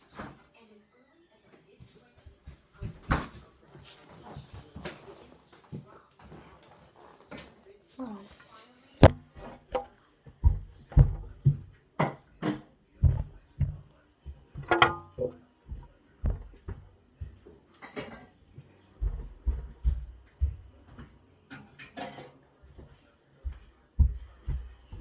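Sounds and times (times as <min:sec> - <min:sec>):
objects knocking and clattering: 0:09.0 - 0:18.4, 0:19.0 - 0:22.4.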